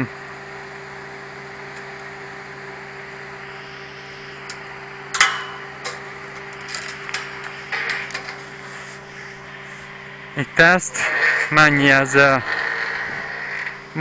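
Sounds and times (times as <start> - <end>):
steady low hum: 0.0 - 14.0
metal gate clanking and rattling: 5.1 - 8.4.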